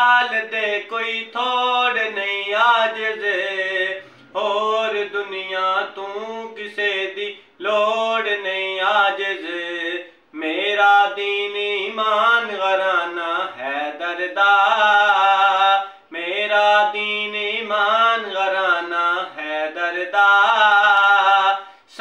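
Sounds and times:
man singing unaccompanied: 0.0s - 22.0s.

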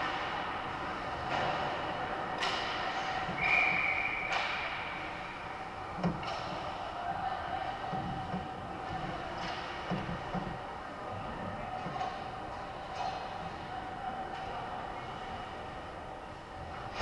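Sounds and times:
hockey sticks and puck clacking: 0.0s - 5.2s, 5.9s - 10.6s, 11.7s - 14.7s.

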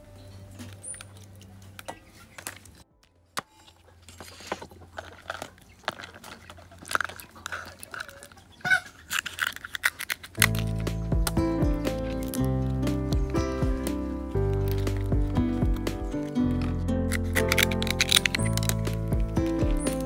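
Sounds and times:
music: 0.0s - 1.3s, 10.4s - 20.0s
crab shell cracking and crunching: 4.2s - 13.1s, 13.9s - 15.3s, 16.0s - 20.0s
kitchen scissors cutting shell: 9.0s - 12.5s, 16.5s - 20.0s.

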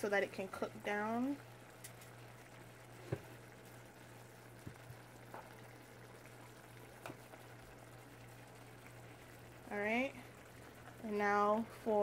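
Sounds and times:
low steady hum: 0.0s - 12.0s
sauce simmering: 0.1s - 12.0s.

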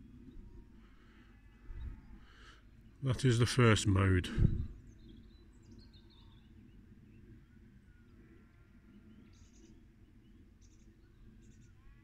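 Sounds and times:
distant animal calls and chirps: 4.8s - 12.0s.

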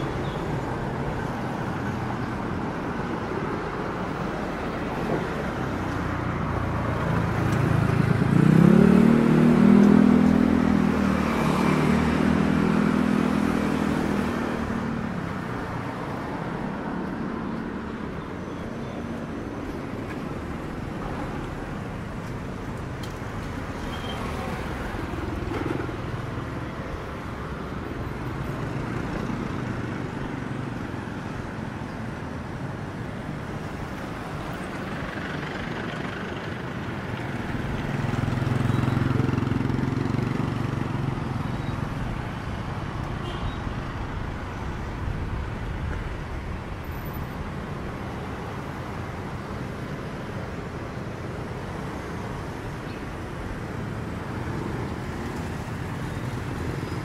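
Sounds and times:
street traffic rumble: 0.0s - 57.0s
vehicle passing close: 6.7s - 14.9s.

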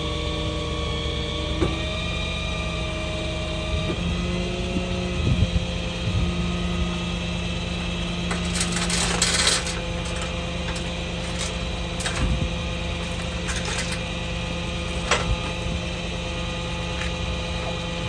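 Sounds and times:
truck engine running: 0.0s - 18.0s
metal chains clinking and rattling: 8.3s - 16.1s.

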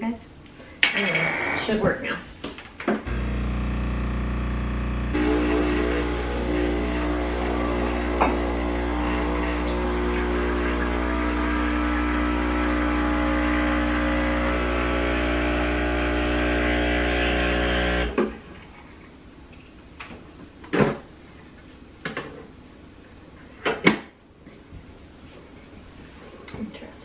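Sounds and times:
espresso machine pump humming: 3.1s - 18.2s.

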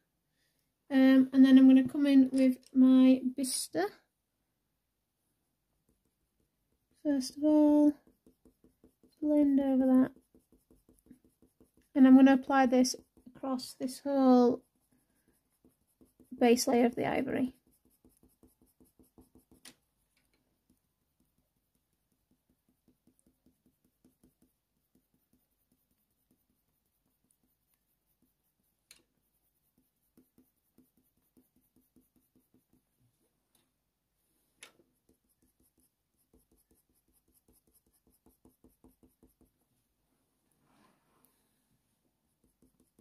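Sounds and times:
pencil scratching on paper: 5.8s - 19.8s, 20.7s - 33.0s, 34.8s - 39.6s, 42.2s - 43.0s.

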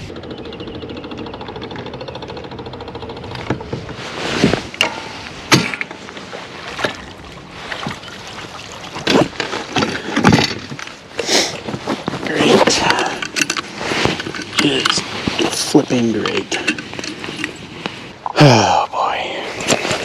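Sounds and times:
clunks and knocks of pedal: 3.2s - 4.0s, 9.0s - 10.9s.

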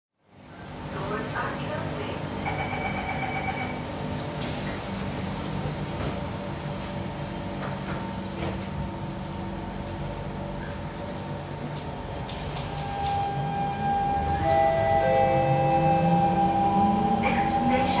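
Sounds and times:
door warning tone: 2.4s - 3.9s, 12.6s - 18.0s.

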